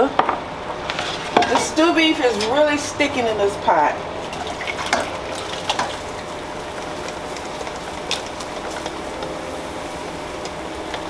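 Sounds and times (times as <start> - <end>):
metal pots clinking: 1.2 - 2.6, 4.3 - 9.4
sizzling hiss: 5.2 - 11.0.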